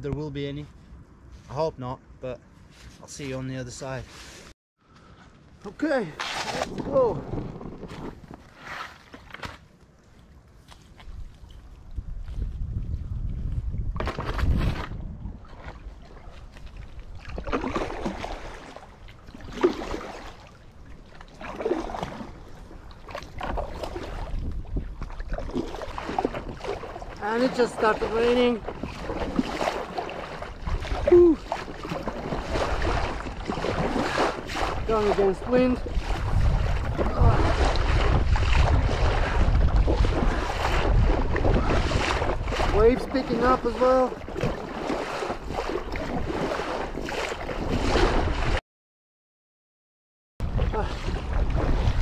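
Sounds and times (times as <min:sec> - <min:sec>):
paddle strokes splashing: 0:05.8 - 0:11.6, 0:14.0 - 0:48.6, 0:50.4 - 0:52.0
wind rumble on microphone: 0:06.5 - 0:08.5, 0:10.9 - 0:18.6, 0:22.0 - 0:48.6, 0:50.4 - 0:52.0.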